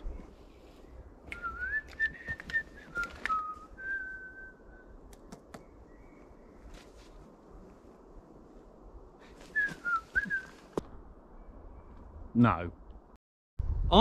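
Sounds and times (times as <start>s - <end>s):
man whistling a tune: 1.3s - 4.8s, 9.5s - 10.6s.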